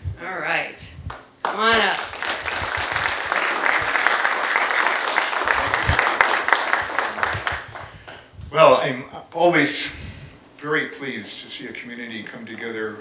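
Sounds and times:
audience applauding: 0:01.4 - 0:08.3.

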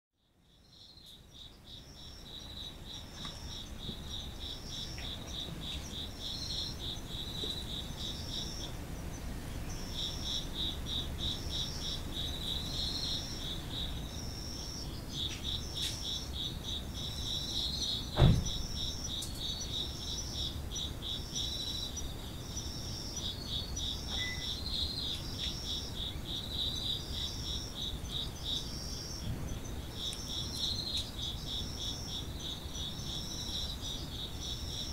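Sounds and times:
insect pulsing trill: 0:00.6 - 0:34.9
cricket short high chirps: 0:00.7 - 0:34.9
dull thump: 0:18.2 - 0:18.6.

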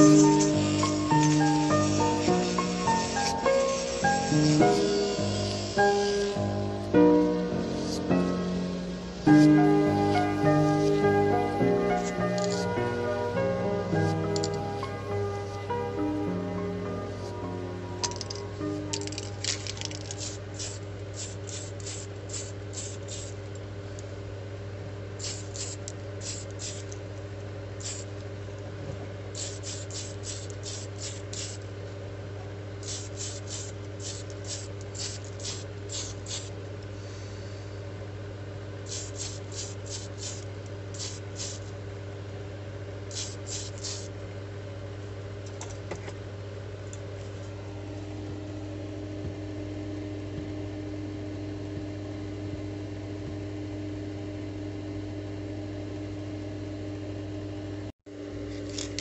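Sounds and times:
airbrush spraying hisses: 0:00.0 - 0:06.4, 0:07.7 - 0:08.2, 0:20.2 - 0:23.4, 0:25.2 - 0:26.9, 0:27.8 - 0:28.1, 0:29.4 - 0:31.6, 0:32.8 - 0:36.5, 0:38.9 - 0:41.7, 0:43.1 - 0:44.1
airbrush compressor hum: 0:00.0 - 0:24.0, 0:25.1 - 0:28.2, 0:29.3 - 0:31.7, 0:32.8 - 0:38.0, 0:38.8 - 0:41.8, 0:43.0 - 0:44.2.

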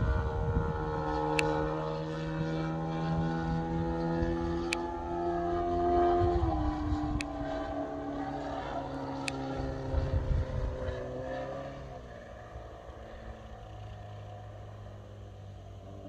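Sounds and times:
wind buffeting microphone: 0:00.0 - 0:11.6
model plane engine in flight: 0:00.0 - 0:16.0.

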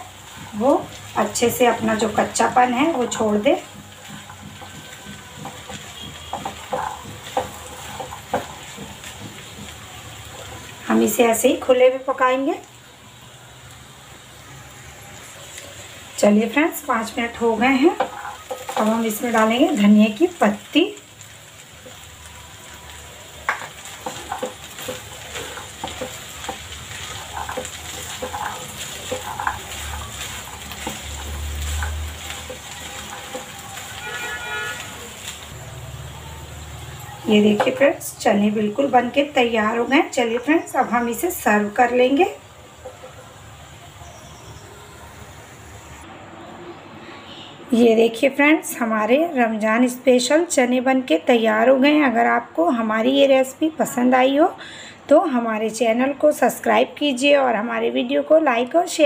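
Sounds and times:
faint sizzle: 0:00.0 - 0:46.1
spatula scraping a pan: 0:03.9 - 0:09.6, 0:17.8 - 0:19.4, 0:23.5 - 0:35.3.

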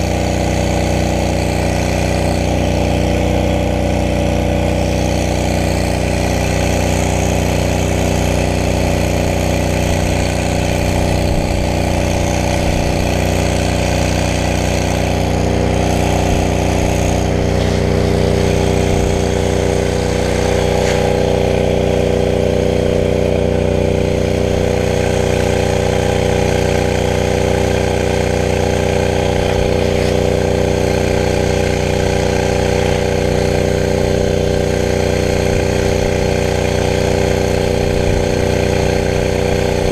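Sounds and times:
truck engine droning: 0:00.0 - 0:39.9.

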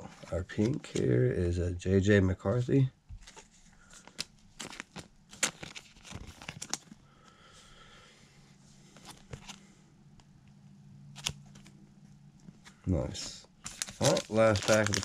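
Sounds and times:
faint low hum: 0:00.0 - 0:15.0
trading cards shuffling: 0:03.2 - 0:07.0, 0:12.5 - 0:15.0.

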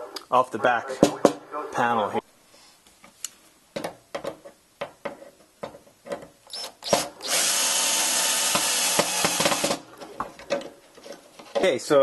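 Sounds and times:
cordless drill boring into wood: 0:06.5 - 0:09.8.

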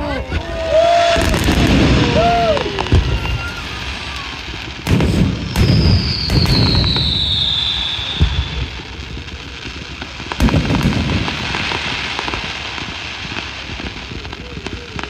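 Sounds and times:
firework crackling: 0:00.0 - 0:15.0
firework shells booming: 0:01.0 - 0:15.0
high whistle falling in pitch: 0:05.6 - 0:08.6.

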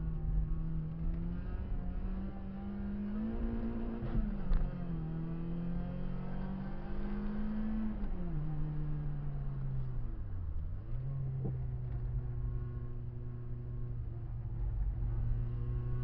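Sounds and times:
car engine accelerating hard: 0:00.2 - 0:09.8.

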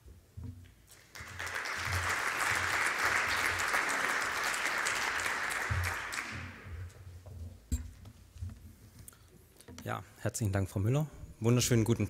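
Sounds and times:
audience applauding: 0:00.9 - 0:06.9.

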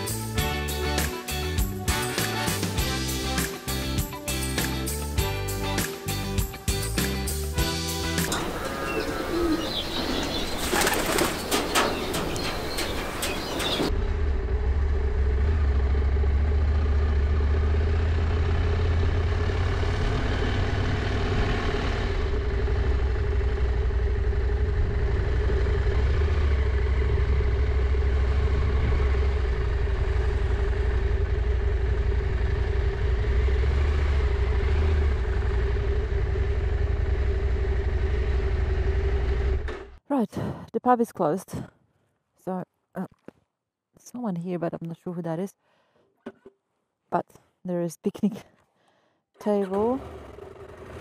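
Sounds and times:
motorcycle engine at low revs: 0:11.4 - 0:40.0, 0:49.4 - 0:51.0.

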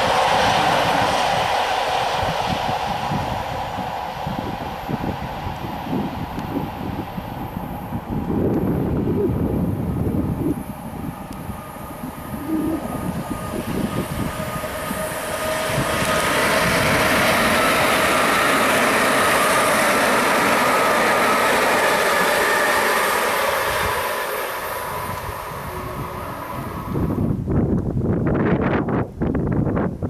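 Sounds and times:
train wheels on rails: 0:00.0 - 0:27.9
steady high tones: 0:09.8 - 0:27.4.

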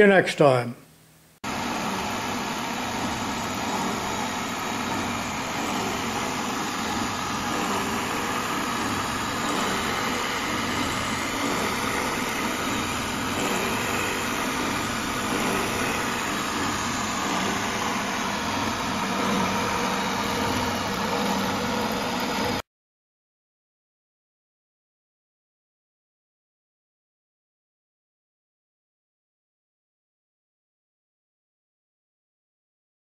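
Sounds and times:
milling machine cutting metal: 0:01.5 - 0:22.6.

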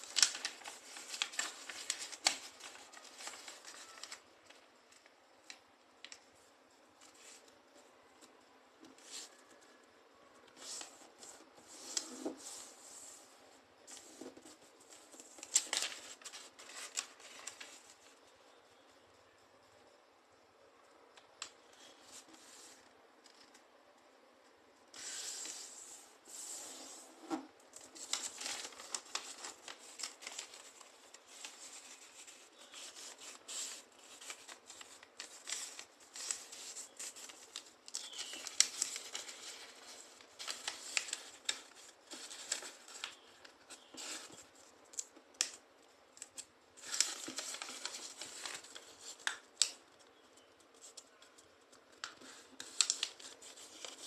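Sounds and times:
paper being folded and creased: 0:00.0 - 0:06.2, 0:07.0 - 0:07.5, 0:08.9 - 0:09.7, 0:10.5 - 0:13.2, 0:13.9 - 0:18.1, 0:25.0 - 0:45.6, 0:46.2 - 0:54.0.

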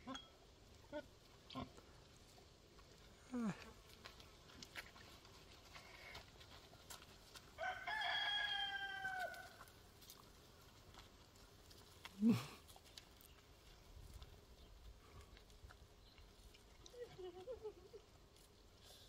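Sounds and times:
rooster crowing: 0:07.6 - 0:09.7.

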